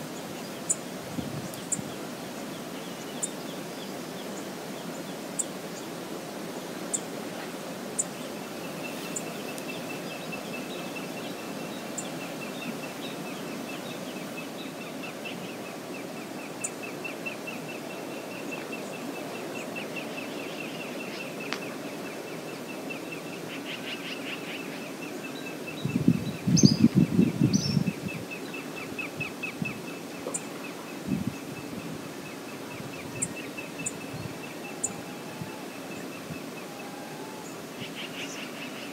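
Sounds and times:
shallow river flowing: 0.0 - 25.8
birds calling: 6.6 - 38.9.

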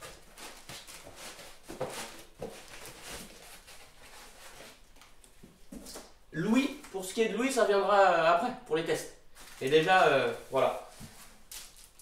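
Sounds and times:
foam and cardboard rustling: 0.0 - 6.1, 9.4 - 12.0.

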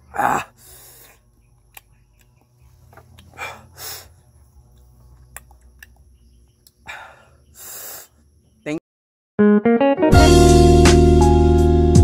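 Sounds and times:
man breathing noisily: 0.4 - 1.3, 3.2 - 4.4, 6.8 - 8.2.

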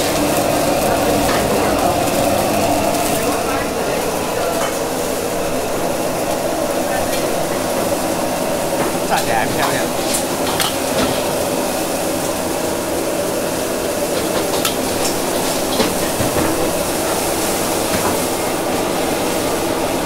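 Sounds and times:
constant market hiss: 0.0 - 20.0
clicks and knocks of utensils: 8.8 - 11.4.

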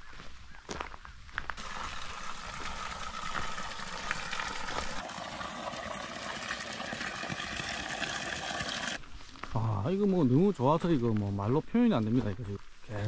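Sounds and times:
water pouring and splashing: 1.6 - 9.0
water trickling over rocks: 1.6 - 9.0.

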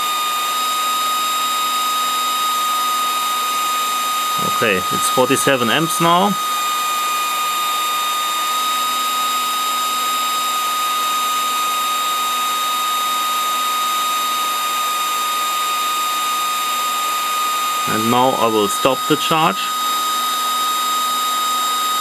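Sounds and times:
cooling fan running at high speed: 0.0 - 22.0.

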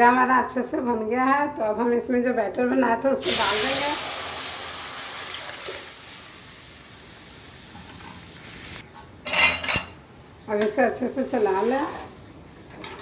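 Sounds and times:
batter sizzling in hot oil: 3.2 - 8.8.

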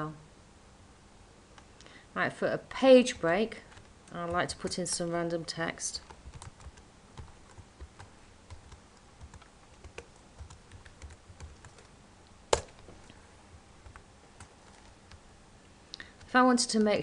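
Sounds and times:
computer keyboard typing: 3.2 - 5.2, 5.9 - 11.9, 13.8 - 15.2.

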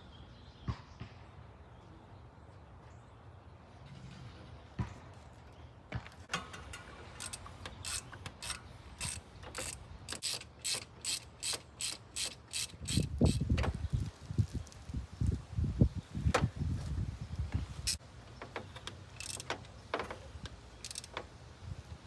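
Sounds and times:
hand ratchet clicking: 7.1 - 13.7, 17.9 - 21.3.

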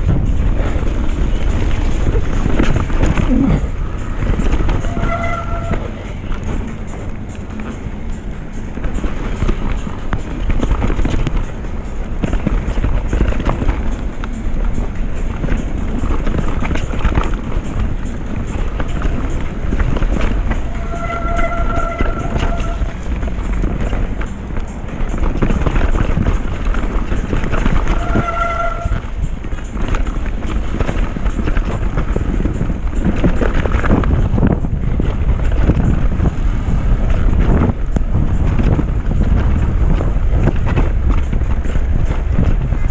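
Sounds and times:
bike rattling over bumps: 0.0 - 42.9
tyre and trail noise: 0.0 - 42.9
wind on microphone: 0.0 - 42.9
brief steady squeal: 4.8 - 5.9, 20.7 - 22.9.

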